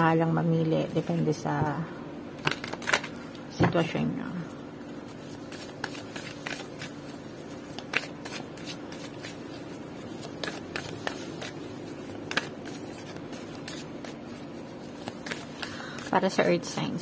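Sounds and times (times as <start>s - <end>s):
cards being shuffled by hand: 2.4s - 3.3s, 4.9s - 16.7s.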